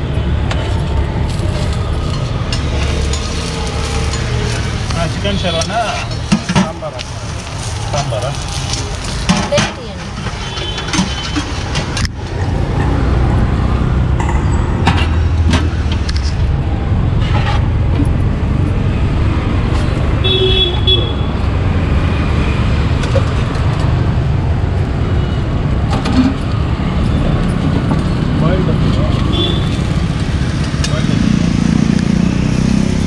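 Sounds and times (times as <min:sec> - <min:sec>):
street traffic rumble: 0:00.0 - 0:33.0
vehicle horn tooting: 0:20.2 - 0:21.4, 0:29.3 - 0:29.8.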